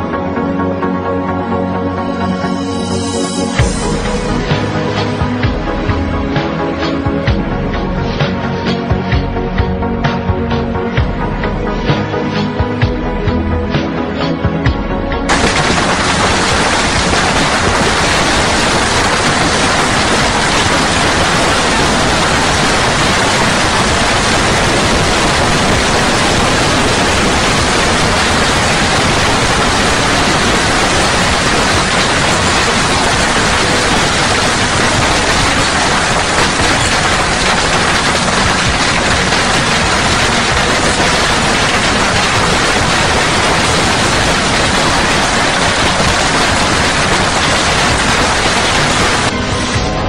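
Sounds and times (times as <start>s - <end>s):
hail and rain pelting down: 15.3s - 49.3s.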